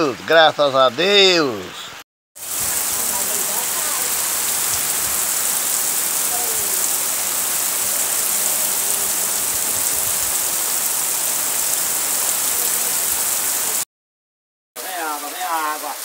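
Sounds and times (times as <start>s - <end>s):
heavy rain pouring: 2.4s - 13.9s, 14.8s - 16.0s.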